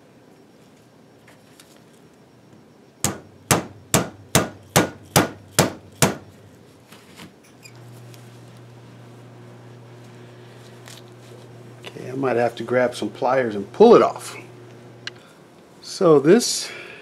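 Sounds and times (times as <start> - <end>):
faint steady hum: 0.0 - 17.0
hammer tapping on a punch: 3.0 - 6.2.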